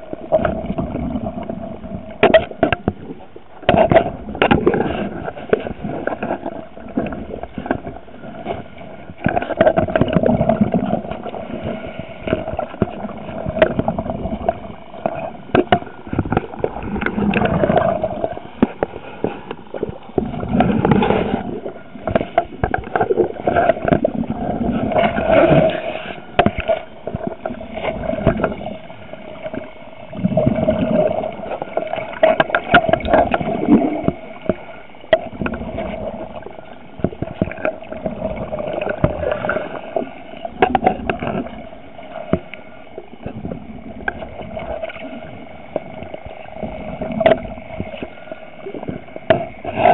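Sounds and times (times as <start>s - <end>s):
bubbles gurgling: 9.2s - 18.6s, 19.7s - 25.9s, 27.0s - 41.6s.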